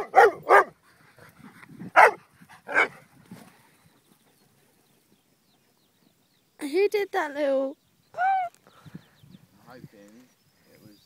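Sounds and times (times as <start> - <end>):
dog barking: 0.0 - 0.8, 2.0 - 3.0.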